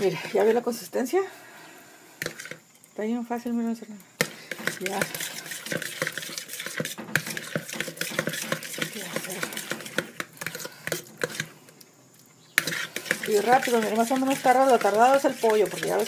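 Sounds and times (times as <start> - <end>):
utensil scraping plastic bowl: 2.2 - 2.6, 4.2 - 11.6, 12.5 - 16.0.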